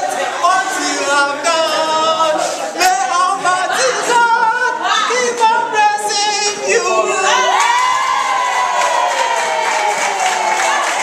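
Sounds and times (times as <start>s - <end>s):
group of students singing: 0.0s - 8.4s.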